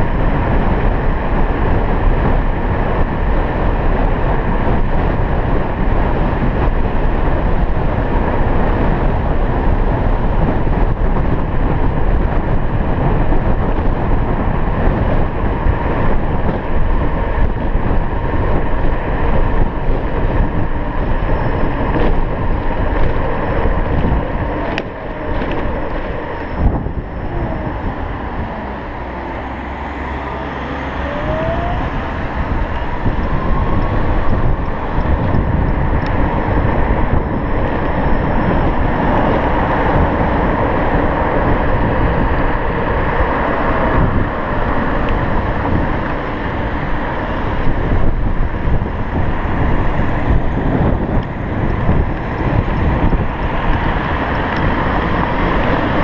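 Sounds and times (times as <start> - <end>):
tyre noise on road: 0.0 - 56.0
wind rush on microphone: 0.0 - 56.0
electric motor whine: 23.9 - 56.0.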